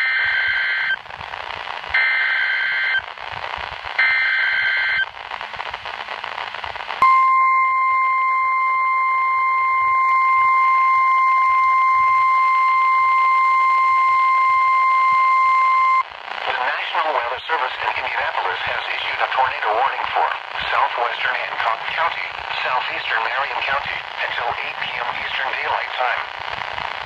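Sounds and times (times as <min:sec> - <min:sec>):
radio hiss: 0:00.0 - 0:07.0, 0:11.3 - 0:27.0
steady alarm tone: 0:07.0 - 0:16.0.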